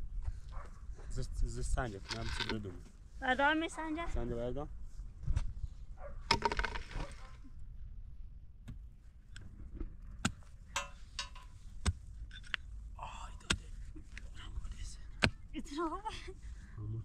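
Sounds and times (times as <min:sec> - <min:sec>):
small hard objects clinking: 0:06.3 - 0:07.1.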